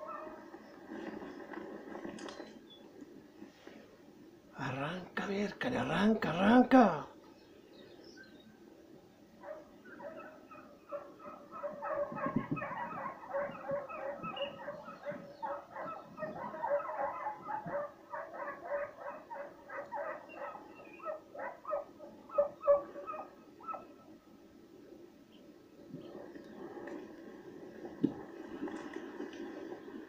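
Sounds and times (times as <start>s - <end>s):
dogs baying and yelping: 0.0s - 0.5s, 9.4s - 24.0s.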